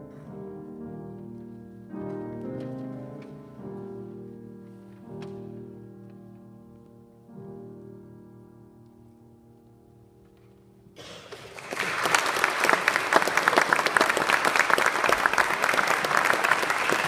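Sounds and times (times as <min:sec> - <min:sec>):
piano chord: 0:00.0 - 0:11.0
audience applause: 0:11.2 - 0:17.0.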